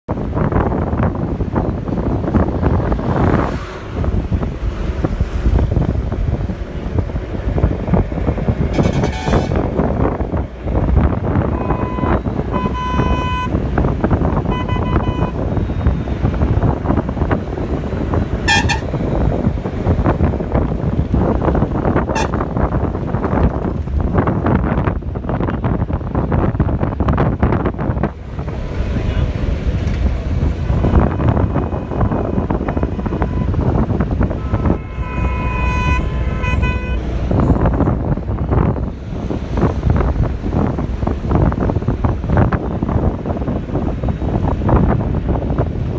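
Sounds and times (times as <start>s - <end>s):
bus road rumble: 0.1s - 45.9s
vehicle horn blasts: 8.7s - 9.7s, 11.5s - 13.6s, 14.4s - 15.5s, 18.4s - 19.0s, 22.1s - 22.4s, 30.8s - 37.1s
short high beep: 11.6s - 13.5s, 14.5s - 15.8s.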